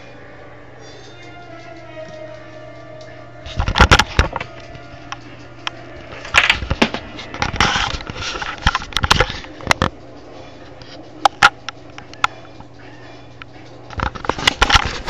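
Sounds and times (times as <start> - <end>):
playing cards clicking and snapping: 6.3 - 9.9.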